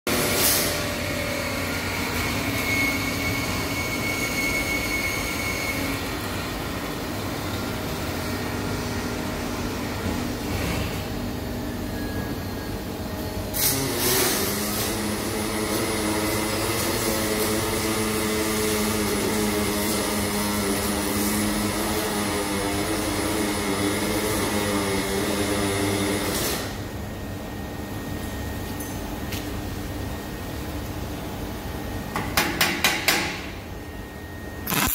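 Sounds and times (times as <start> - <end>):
machine drone: 34.3 - 34.9.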